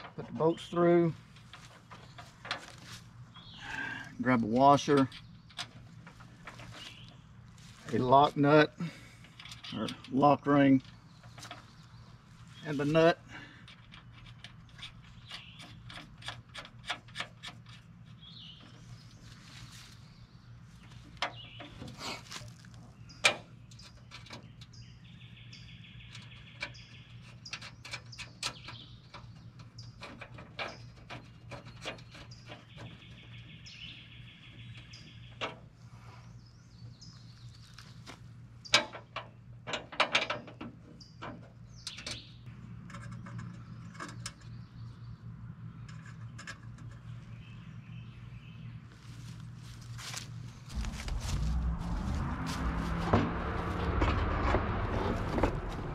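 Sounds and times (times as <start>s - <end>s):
bolts and nuts clicking: 9.2s - 11.6s, 13.6s - 18.2s, 38.7s - 42.2s
steady low hum: 42.4s - 55.9s.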